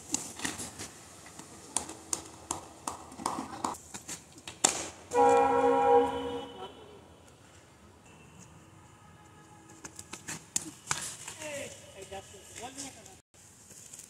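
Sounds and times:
loud steady horn: 5.1s - 7.1s, 8.1s - 9.8s.

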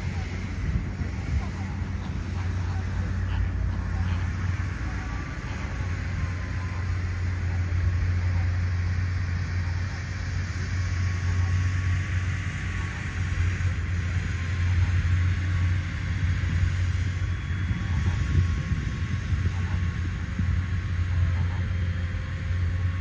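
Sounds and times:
distant road traffic rumble: 0.0s - 23.0s.

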